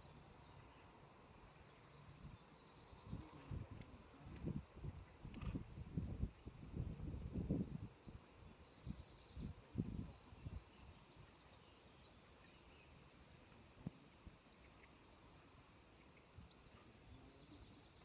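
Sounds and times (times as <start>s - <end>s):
small bird singing: 0.0s - 4.6s, 7.4s - 13.3s, 14.5s - 18.0s.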